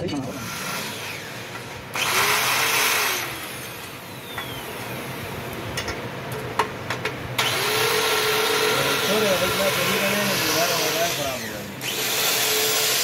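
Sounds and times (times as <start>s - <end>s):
power grinder grinding metal: 0.0s - 5.2s, 7.4s - 13.0s.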